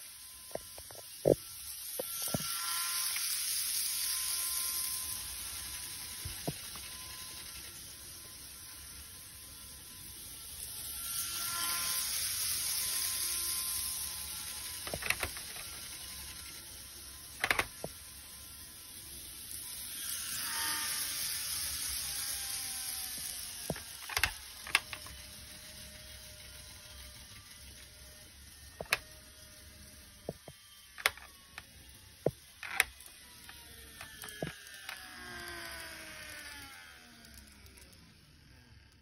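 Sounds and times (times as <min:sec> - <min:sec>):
model train running on track: 0:00.0 - 0:39.0.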